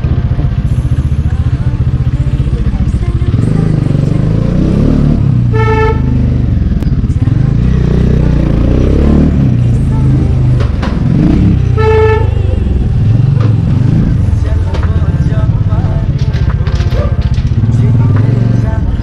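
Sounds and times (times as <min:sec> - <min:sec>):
loud motorcycle engine revving: 0:00.0 - 0:19.0
horn beeping: 0:05.4 - 0:06.6, 0:09.8 - 0:10.6, 0:11.2 - 0:13.2.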